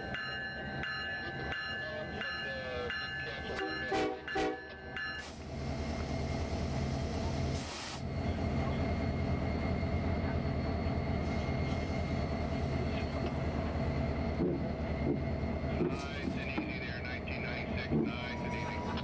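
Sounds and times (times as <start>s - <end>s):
diesel locomotive engine drone: 0.0s - 19.0s
short hiss of air: 7.5s - 8.1s.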